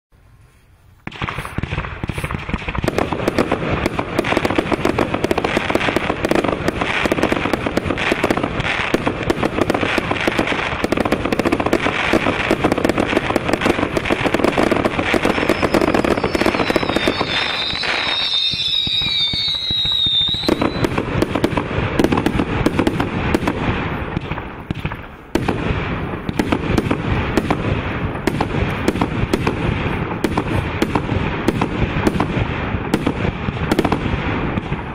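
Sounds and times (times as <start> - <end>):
fireworks firing and crackling: 0.2 - 34.9
high wavering firework whistle: 14.2 - 22.1.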